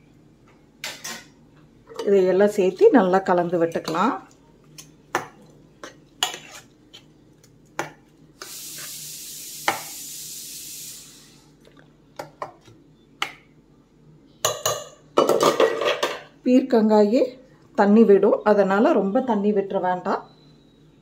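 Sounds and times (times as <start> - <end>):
ladle stirring wet vegetables: 2.0 - 9.0
steady hiss: 8.4 - 11.5.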